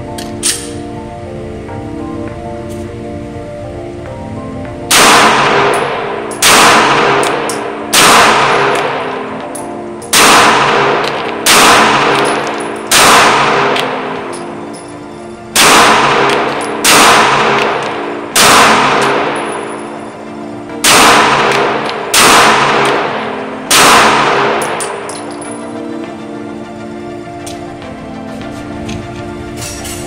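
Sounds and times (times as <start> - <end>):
pistol shots echoing indoors: 4.9 - 20.1, 20.7 - 25.6.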